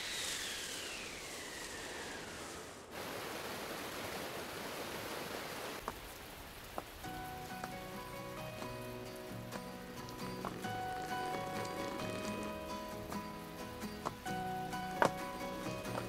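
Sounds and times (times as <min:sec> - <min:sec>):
whistling wind gust: 0:00.0 - 0:04.4
rain hiss: 0:00.0 - 0:16.0
soft music with held notes: 0:07.0 - 0:16.0.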